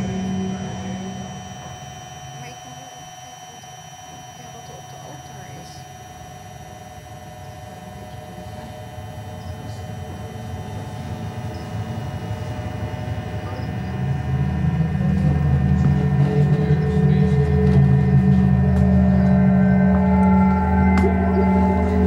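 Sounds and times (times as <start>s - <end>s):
deep low drone: 0.0s - 22.0s
faint high tones: 17.8s - 22.0s.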